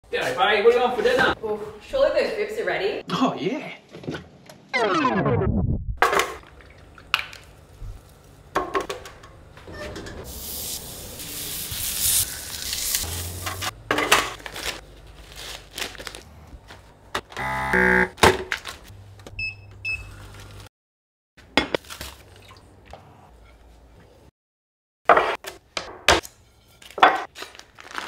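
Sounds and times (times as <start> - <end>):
meat sizzling on griddle: 10.3 - 13.5.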